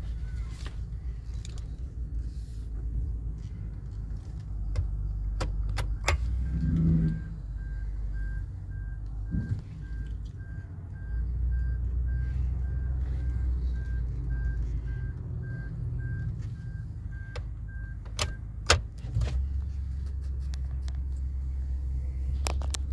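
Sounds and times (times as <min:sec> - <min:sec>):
pickup engine idling: 0:00.0 - 0:22.9
warning beep: 0:06.0 - 0:18.4.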